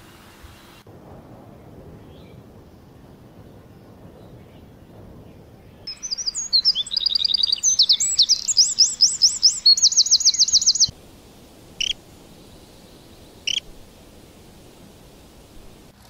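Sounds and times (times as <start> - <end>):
wren singing: 3.3 - 15.9
short sharp bird chirps: 5.9 - 10.9, 11.8 - 13.7.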